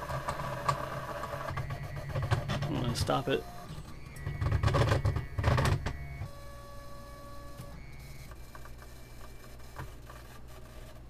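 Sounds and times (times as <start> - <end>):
electrical whine: 0.0 - 11.0.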